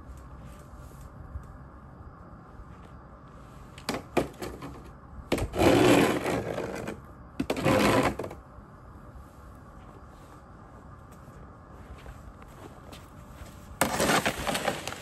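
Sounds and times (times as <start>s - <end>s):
snow shovel scraping pavement: 5.4s - 8.3s, 13.7s - 15.0s.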